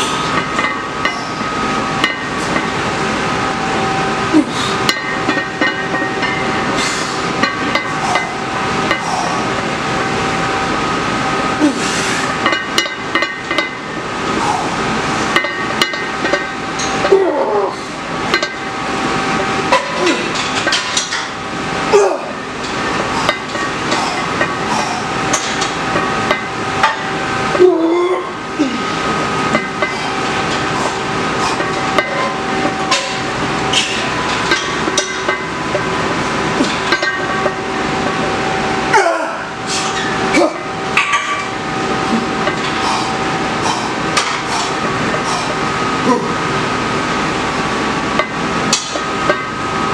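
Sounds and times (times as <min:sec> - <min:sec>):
steady hum: 0:00.0 - 0:49.9
person grunting: 0:04.3 - 0:04.8, 0:11.6 - 0:11.9, 0:17.1 - 0:17.9, 0:20.0 - 0:20.3, 0:21.9 - 0:22.4, 0:27.6 - 0:29.0, 0:38.9 - 0:39.5, 0:45.3 - 0:46.4
barbell plates clanking: 0:04.4 - 0:09.7, 0:12.2 - 0:18.7, 0:19.7 - 0:38.3, 0:39.7 - 0:46.5, 0:48.1 - 0:49.6
barbell plates clinking: 0:04.9 - 0:09.4, 0:22.6 - 0:27.2, 0:29.4 - 0:37.7.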